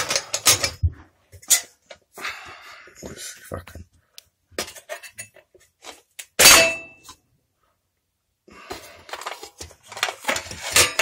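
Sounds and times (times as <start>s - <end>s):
sharp metal clang: 6.4s - 7.0s.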